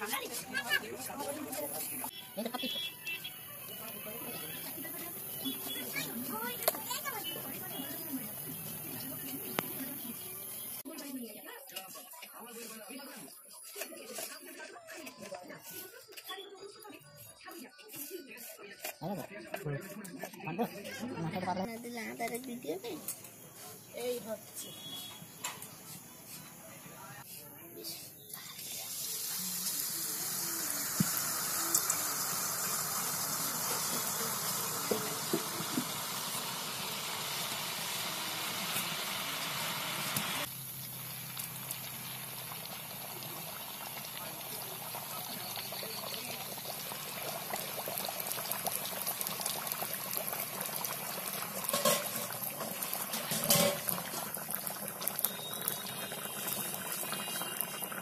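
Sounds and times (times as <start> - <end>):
batter sizzling in hot oil: 0.0 - 11.5, 28.2 - 58.0.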